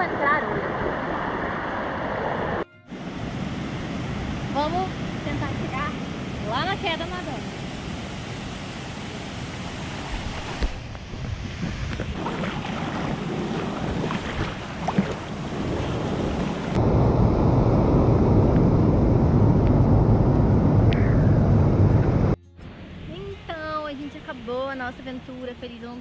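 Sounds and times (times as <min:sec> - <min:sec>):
swimmer splashing: 0:12.0 - 0:16.8.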